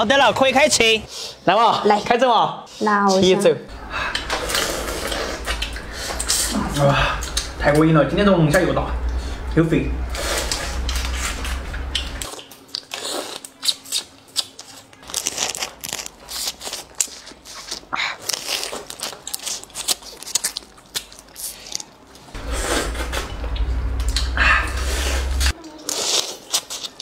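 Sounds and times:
sucking and chewing: 0:04.0 - 0:07.6, 0:10.1 - 0:27.0.

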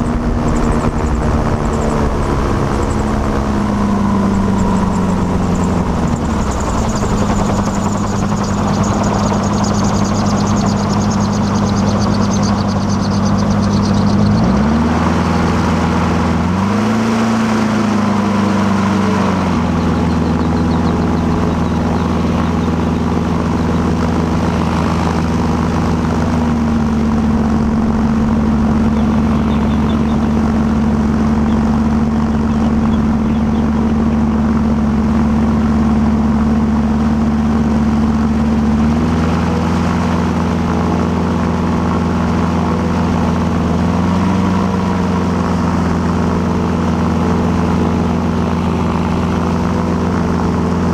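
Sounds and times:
gyrocopter engine and propeller: 0:00.0 - 0:50.9.

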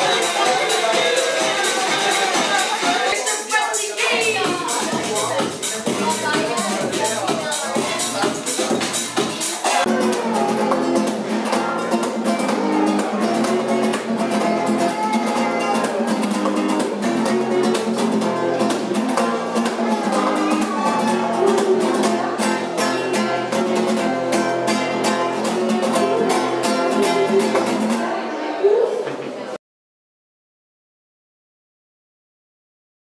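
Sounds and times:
classical guitar strumming: 0:04.2 - 0:28.2.

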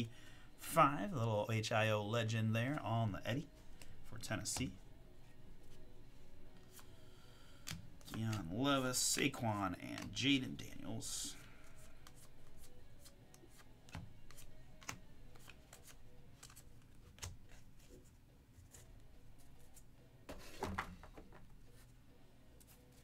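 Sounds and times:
trading cards clicking and sliding: 0:03.5 - 0:19.0.

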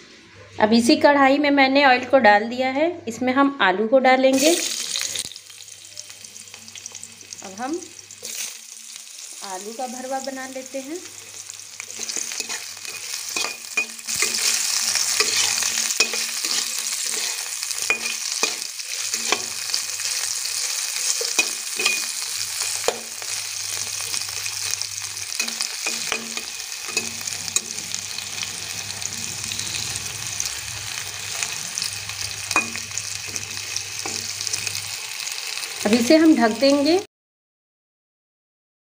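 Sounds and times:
potato slices sizzling in oil: 0:04.3 - 0:37.1
metal utensil scraping pan: 0:11.1 - 0:35.8.

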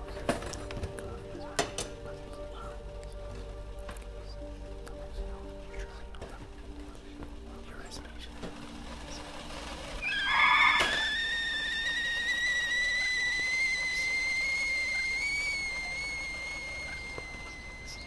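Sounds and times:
high whistling tone: 0:10.0 - 0:18.0.

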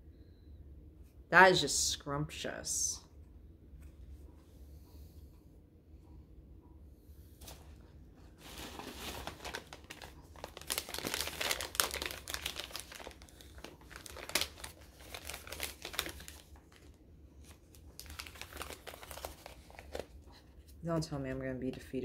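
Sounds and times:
paper bag crinkling and tearing: 0:07.4 - 0:20.2.

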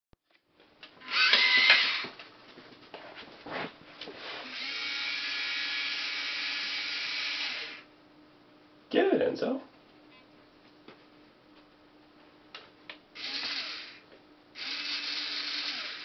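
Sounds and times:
small electric motors whirring: 0:01.0 - 0:02.2, 0:04.4 - 0:07.9, 0:13.2 - 0:14.0, 0:14.6 - 0:16.0.

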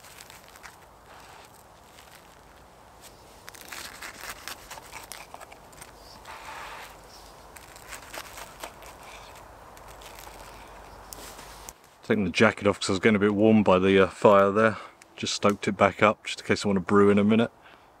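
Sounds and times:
rustling and crunching: 0:00.0 - 0:12.1.

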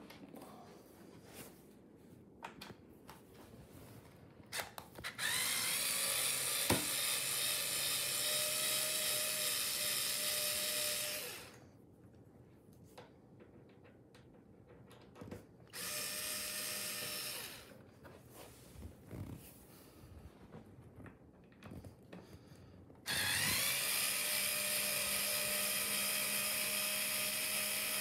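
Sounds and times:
cordless screwdriver motor whining: 0:04.6 - 0:11.6, 0:15.8 - 0:17.8, 0:23.1 - 0:28.0.

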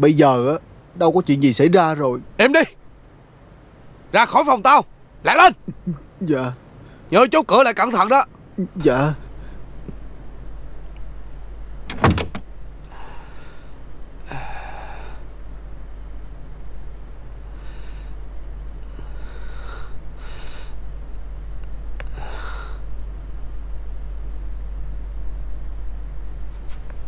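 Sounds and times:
door shutting: 0:11.8 - 0:12.5
man breathing heavily: 0:12.8 - 0:15.3, 0:17.5 - 0:18.2, 0:18.8 - 0:20.9, 0:22.1 - 0:22.9.

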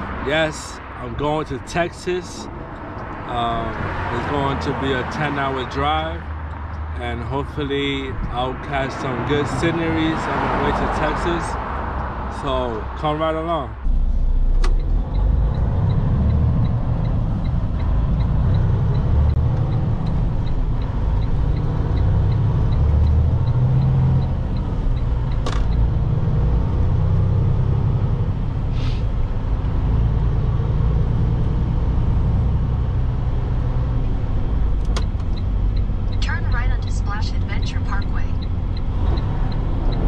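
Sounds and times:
truck engine and tyres rumbling: 0:00.0 - 0:40.0
light regular ticking: 0:14.5 - 0:26.7, 0:34.0 - 0:40.0.

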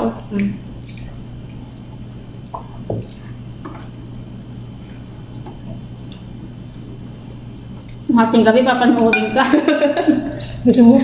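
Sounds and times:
wet chewing: 0:00.0 - 0:08.1
steady low hum: 0:00.0 - 0:11.0.

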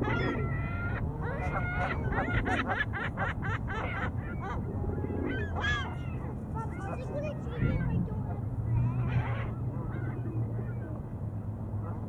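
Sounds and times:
geese honking: 0:00.0 - 0:04.6.

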